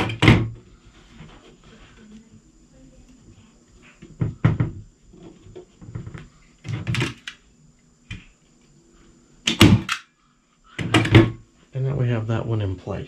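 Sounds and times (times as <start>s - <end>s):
staple gun snaps and knocks: 9.5s - 10.0s.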